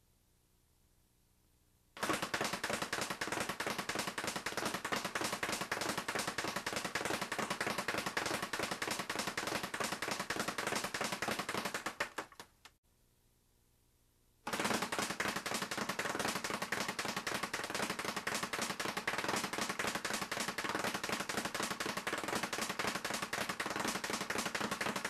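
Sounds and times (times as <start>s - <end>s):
speed bag rattling: 2.0s - 12.5s, 14.5s - 25.0s.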